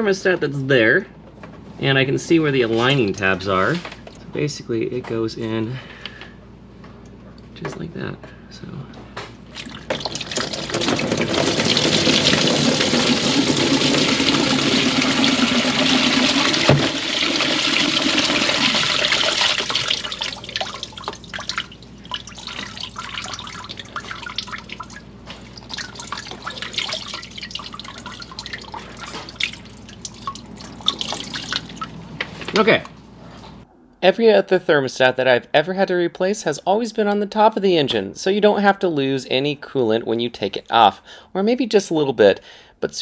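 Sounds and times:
coolant splashing into a pan: 9.5s - 32.0s
liquid dripping: 9.5s - 32.1s.

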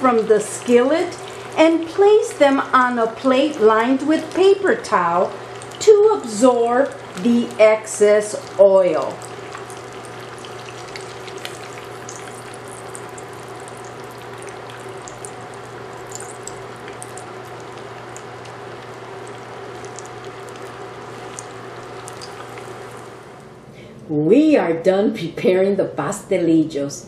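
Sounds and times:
frying in hot oil sizzling: 0.0s - 23.4s
faint steady hum: 0.0s - 27.0s.

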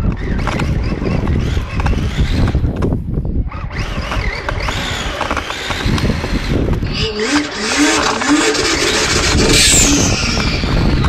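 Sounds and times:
rough rumble: 0.0s - 11.0s
rc car squealing on concrete: 3.5s - 11.0s.

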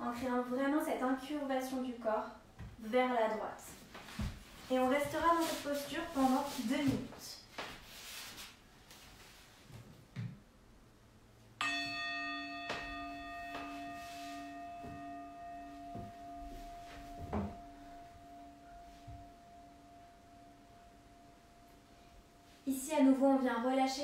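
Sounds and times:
singing bowl ringing: 11.6s - 23.2s.

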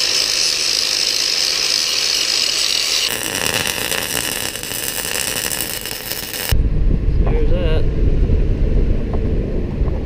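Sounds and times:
angle grinder grinding steel: 0.0s - 6.6s
arc welding crackle: 0.0s - 6.6s.

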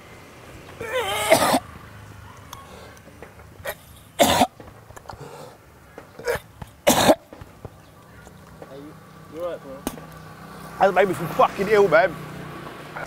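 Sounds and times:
man gagging and coughing: 0.8s - 1.6s, 3.7s - 4.5s, 6.2s - 7.2s.

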